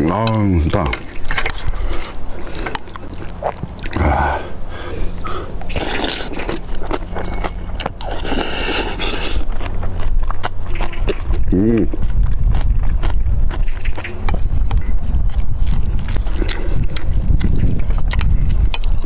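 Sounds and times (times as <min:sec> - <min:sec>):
person chewing: 0:00.0 - 0:19.0
small mouth clicks: 0:00.2 - 0:04.0, 0:05.1 - 0:19.0
person slurping soup: 0:01.6 - 0:06.7, 0:08.0 - 0:09.5.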